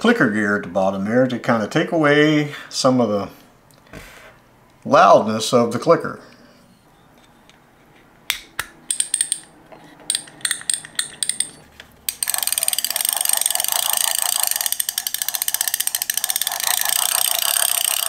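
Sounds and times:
small metal clicks and snaps: 8.3s - 12.9s
reel clicker ratcheting: 10.1s - 18.0s.

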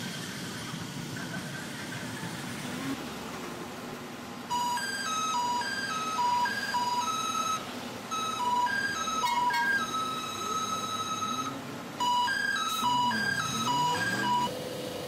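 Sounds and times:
mobile phone ringtone: 4.5s - 14.5s.

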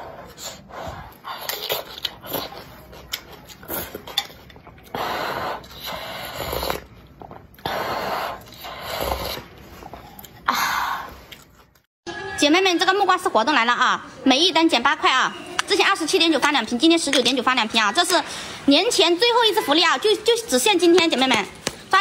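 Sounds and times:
slurping broth: 0.0s - 10.4s
slurping noodles: 0.0s - 10.4s.

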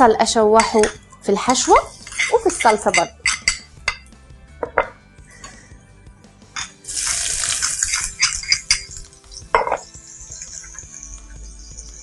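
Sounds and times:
bowl and spoon clinking on pans: 0.6s - 5.6s, 6.6s - 12.0s
onion sizzling in hot oil: 6.9s - 9.2s.

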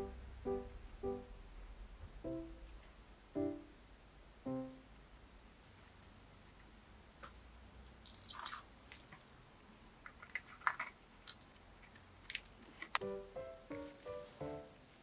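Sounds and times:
piano music: 0.0s - 5.0s, 13.0s - 15.0s.

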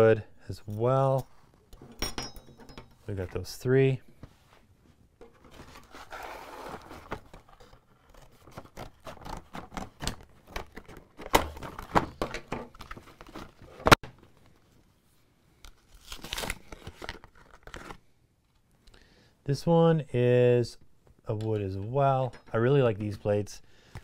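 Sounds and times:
plastic packaging tearing and crinkling: 15.7s - 18.0s.

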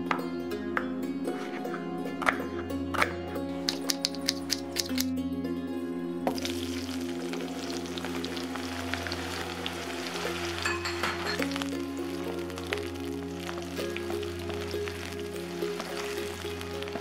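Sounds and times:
onions sizzling in oil: 6.3s - 17.0s.

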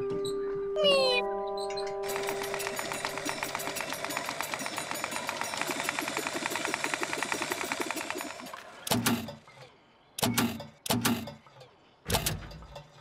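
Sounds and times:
mechanical motor rattle: 2.0s - 9.4s.

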